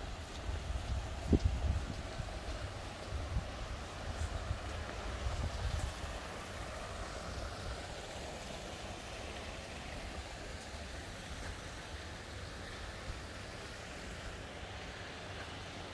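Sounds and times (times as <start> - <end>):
wind rumble on microphone: 0.0 - 6.3
steady rushing outdoor noise: 0.0 - 15.9.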